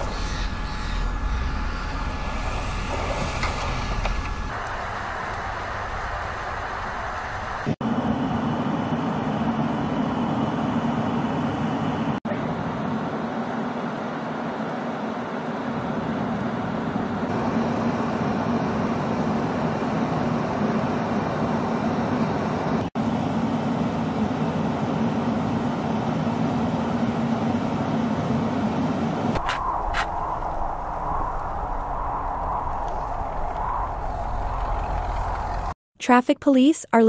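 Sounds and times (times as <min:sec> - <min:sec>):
vehicle engines working: 0:00.0 - 0:35.8.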